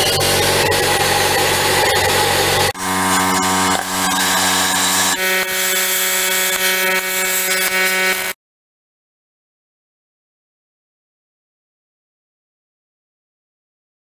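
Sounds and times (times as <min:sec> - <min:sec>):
plasma cutter hissing and buzzing: 0:00.1 - 0:08.4.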